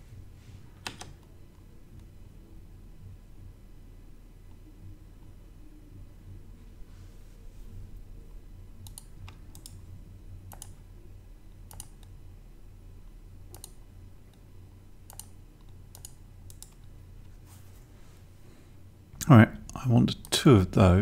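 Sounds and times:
faint low hum: 0.0s - 21.0s
computer mouse clicking: 0.8s - 1.3s, 8.8s - 9.8s, 10.5s - 10.8s, 11.7s - 12.2s, 13.5s - 14.4s, 15.0s - 16.9s.

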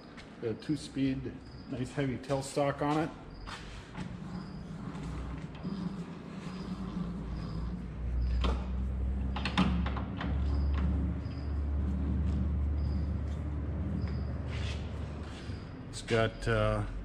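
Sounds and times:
low hum: 4.0s - 17.0s
lathe levers clunking: 8.2s - 14.4s.

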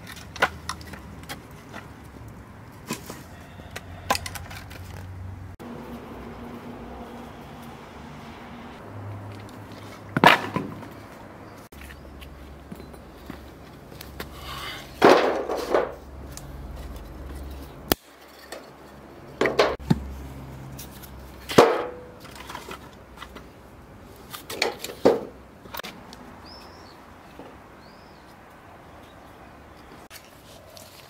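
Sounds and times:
hard objects knocking and clattering: 19.4s - 20.0s.

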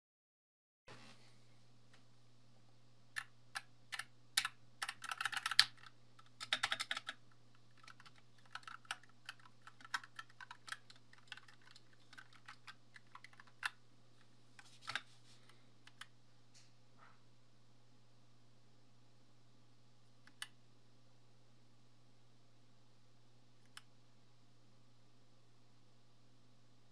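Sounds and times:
mechanical keyboard typing: 3.2s - 13.8s.

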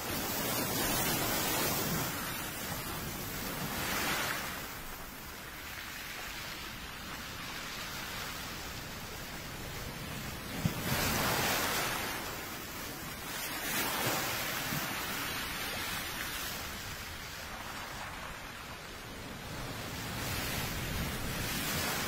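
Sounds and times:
sea waves washing in: 0.0s - 22.0s.

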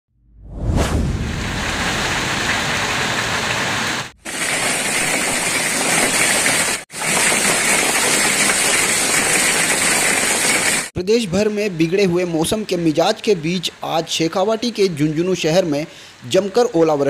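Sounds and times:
heavy rain: 1.1s - 10.9s.

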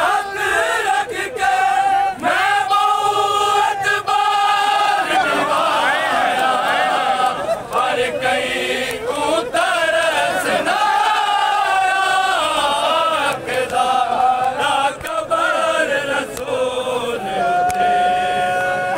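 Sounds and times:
men chanting a lament: 0.0s - 18.9s.

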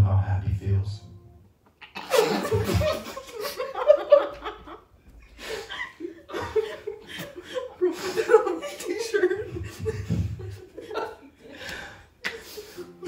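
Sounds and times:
stifled laughter: 1.8s - 4.8s, 5.4s - 11.6s.

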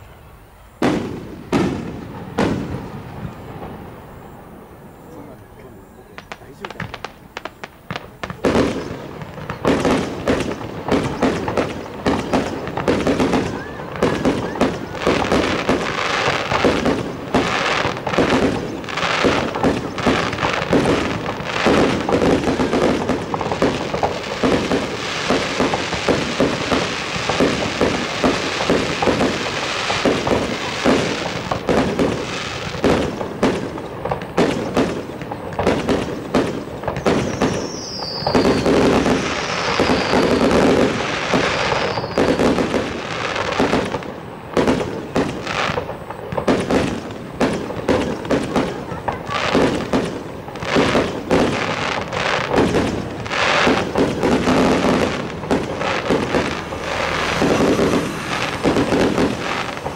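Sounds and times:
falling firework whistles: 0.0s - 59.9s
firework bursts and crackling: 0.0s - 59.9s.

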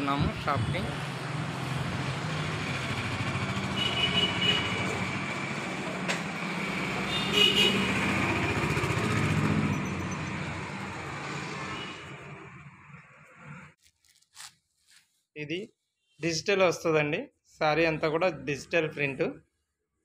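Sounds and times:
vehicle engine running: 1.7s - 7.2s.

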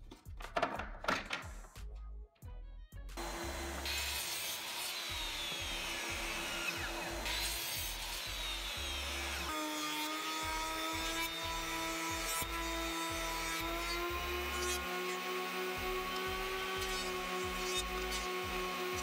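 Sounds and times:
planer motor humming: 3.2s - 9.5s, 10.2s - 19.0s
miter saw cutting wood: 3.2s - 19.0s.

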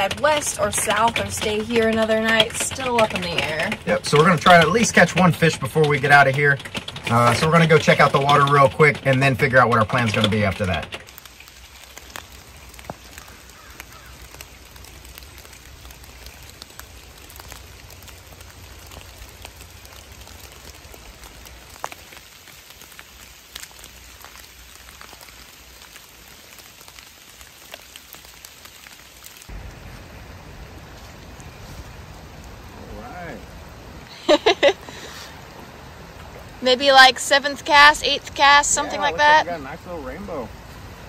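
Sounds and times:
steady rain falling: 0.0s - 41.0s.

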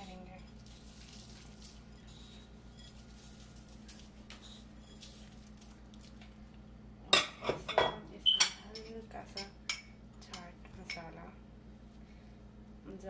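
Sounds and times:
steady low hum: 0.0s - 13.0s
crisp noodles pattering onto food: 0.4s - 6.6s.

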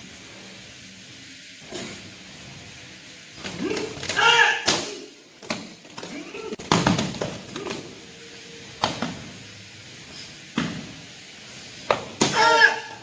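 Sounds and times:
short loud shout: 3.6s - 5.1s, 12.2s - 13.0s.

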